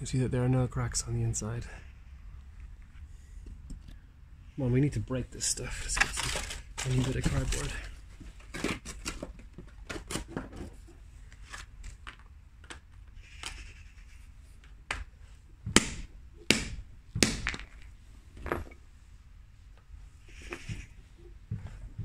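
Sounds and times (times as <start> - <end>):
cardboard rustling: 5.7 - 12.3
objects knocking on brick: 15.6 - 18.8.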